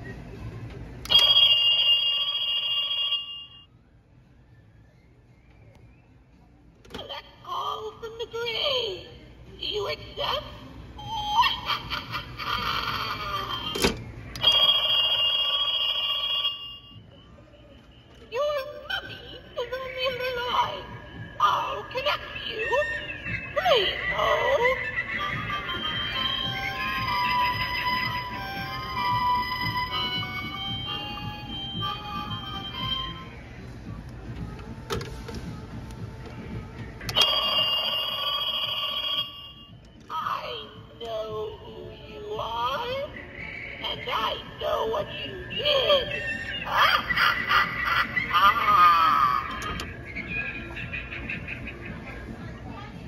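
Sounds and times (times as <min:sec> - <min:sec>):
electronic telephone ringing: 0:01.1 - 0:03.7, 0:14.4 - 0:17.0, 0:37.1 - 0:39.8.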